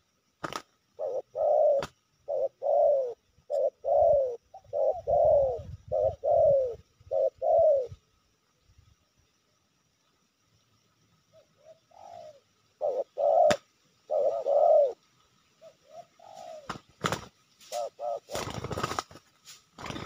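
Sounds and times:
dove cooing: 0.4 - 8.0, 11.3 - 15.0, 15.6 - 19.2.

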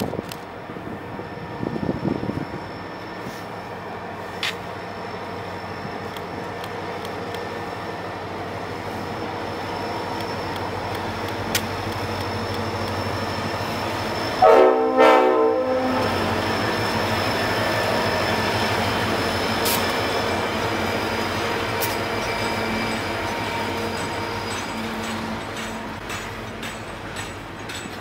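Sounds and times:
diesel locomotive engines: 0.0 - 28.0
rumble of rolling rail cars: 0.0 - 28.0
locomotive horn blasts: 14.4 - 16.2.

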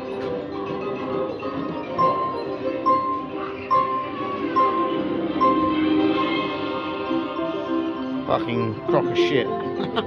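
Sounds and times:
fruit machine electronic music: 0.0 - 10.0
high electronic beep: 2.0 - 7.0.

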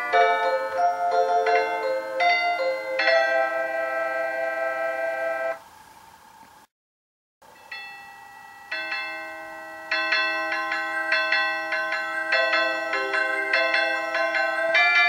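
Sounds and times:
electronic chime melody: 0.0 - 4.3, 7.6 - 15.0.

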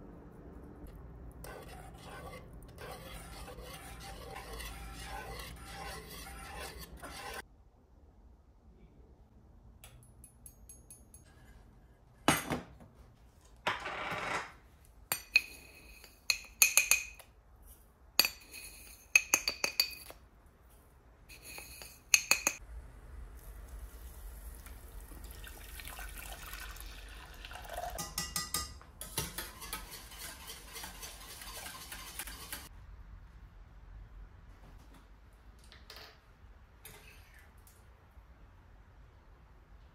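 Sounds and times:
dishes clinking: 21.3 - 22.6, 27.7 - 32.7.

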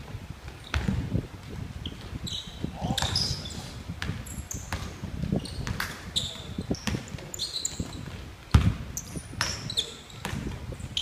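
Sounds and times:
sneakers squeaking on floor: 0.6 - 1.0, 1.8 - 11.0
basketball bouncing on wooden floor: 3.0 - 3.2, 4.0 - 8.8, 9.4 - 10.6.

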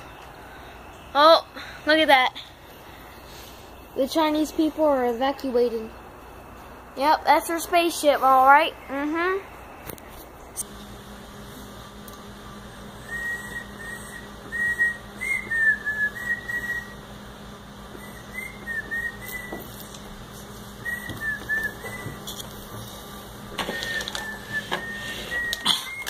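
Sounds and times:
person whistling a tune: 13.1 - 16.9, 18.0 - 19.7, 20.8 - 22.2, 23.7 - 26.0.

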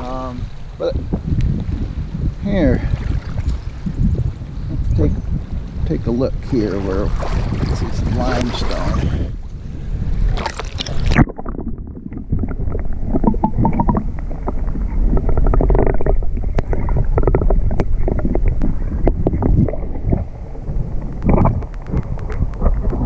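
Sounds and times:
muffled underwater water movement: 0.0 - 23.0
water at lake surface: 0.0 - 23.0
wind: 0.0 - 23.0.

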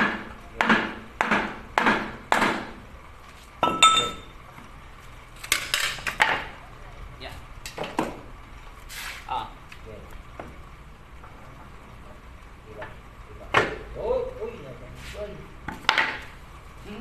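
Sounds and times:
hammer striking wooden block: 0.0 - 2.8, 15.7 - 16.3
ringing metal clink: 3.6 - 4.3.

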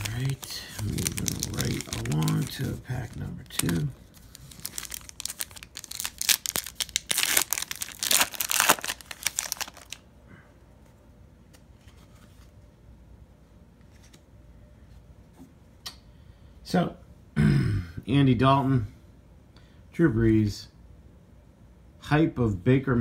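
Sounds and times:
foil wrapper tearing and crinkling: 0.0 - 10.0.

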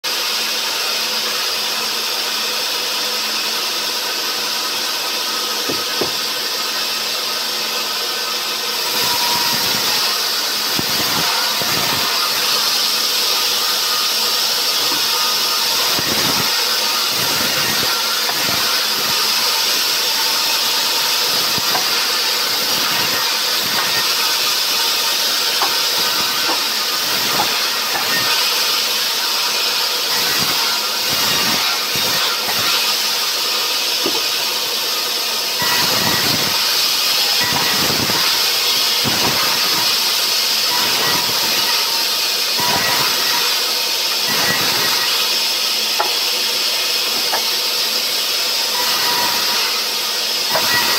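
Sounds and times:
band saw cutting log: 0.1 - 50.9
log knocking on iron table: 5.7 - 6.2.

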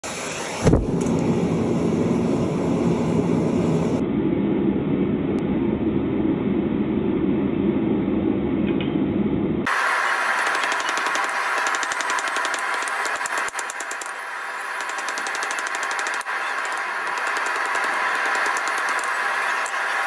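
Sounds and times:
forge burner roaring: 0.0 - 20.0
higher hiss: 9.7 - 20.0.

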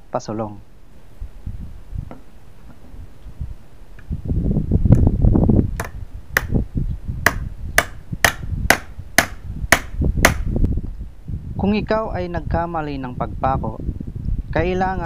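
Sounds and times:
hammer striking nail: 5.8 - 6.6, 7.2 - 10.5.

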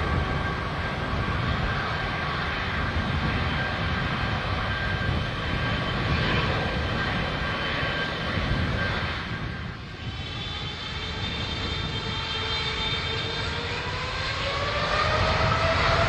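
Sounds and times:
jet engines rumbling and whining: 0.0 - 16.0.

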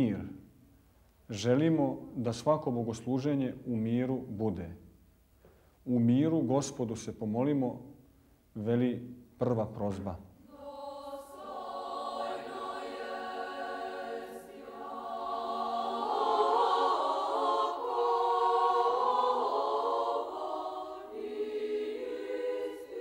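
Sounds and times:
choir chanting in sustained chords: 10.4 - 23.0.

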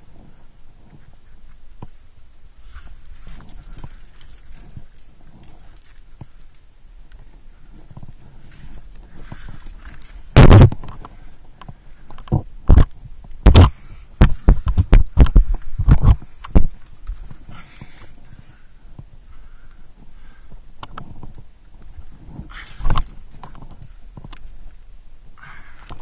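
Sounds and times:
quiet rustling: 0.0 - 26.0.

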